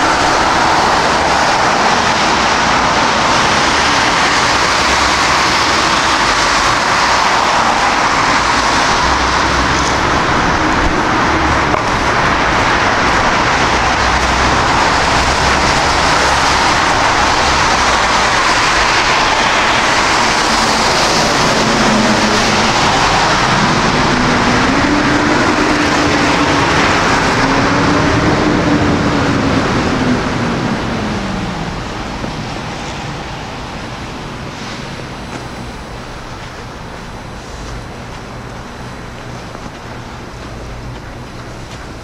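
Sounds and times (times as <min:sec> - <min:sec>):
vehicle passing close: 0:00.0 - 0:31.9.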